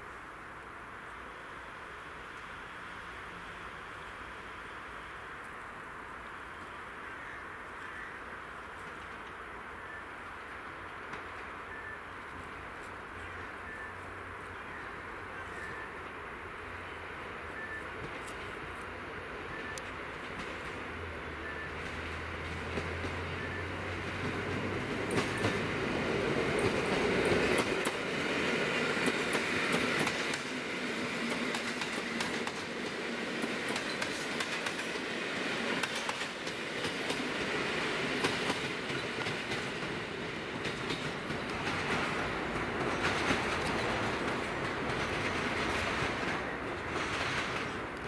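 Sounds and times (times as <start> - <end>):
electric train running past: 0.0 - 48.0
wheels clacking over rail joints: 19.5 - 48.0.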